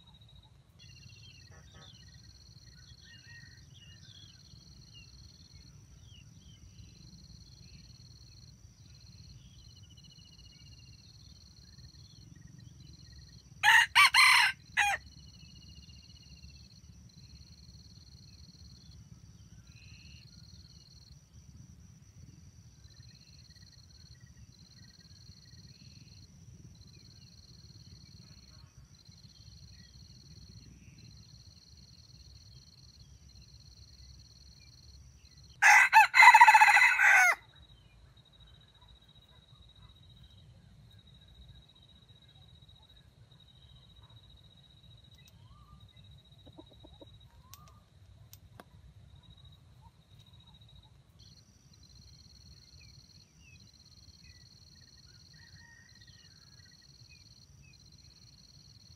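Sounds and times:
rooster crowing: 13.6s - 15.0s, 35.6s - 37.4s.

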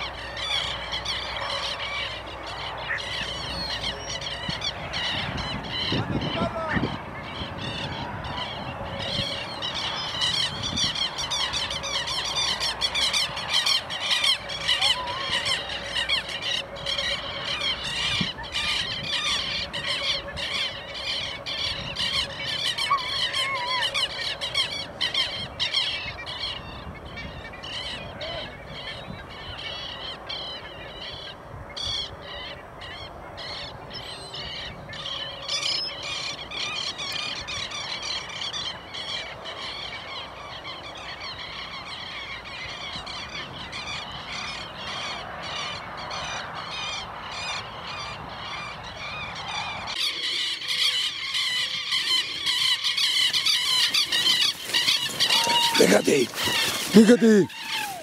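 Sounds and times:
flock of birds squawking: 0.0s - 58.0s.

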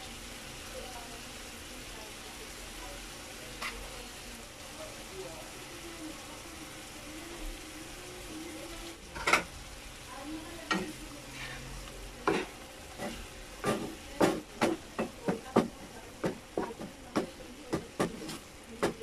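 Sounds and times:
pan sizzling: 0.0s - 19.0s
wooden spatula scraping a wok: 10.7s - 19.0s.

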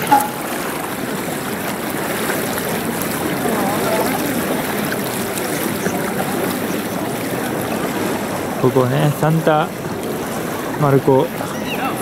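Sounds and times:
feet sloshing through water: 0.0s - 12.0s
faint voices: 3.1s - 9.8s, 10.4s - 12.0s.

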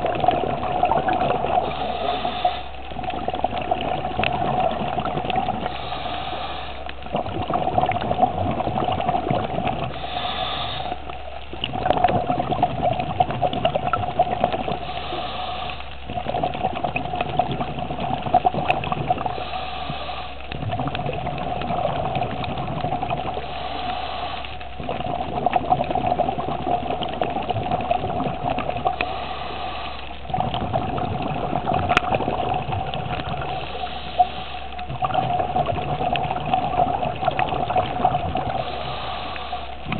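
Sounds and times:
exhaust bubbling underwater: 0.0s - 39.9s
steady hum: 0.0s - 39.9s
regulator hissing inhale: 1.5s - 2.8s, 5.4s - 7.0s, 9.8s - 11.2s, 14.6s - 16.0s, 19.1s - 20.6s, 23.2s - 24.7s, 28.8s - 30.2s, 33.2s - 35.0s, 38.4s - 39.9s.

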